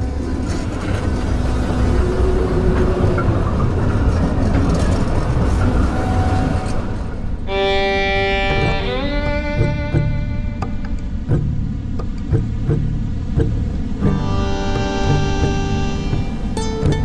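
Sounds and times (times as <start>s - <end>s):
heavy low rumbling: 0.0s - 17.0s
sustained orchestral chord: 7.5s - 11.6s, 13.9s - 17.0s.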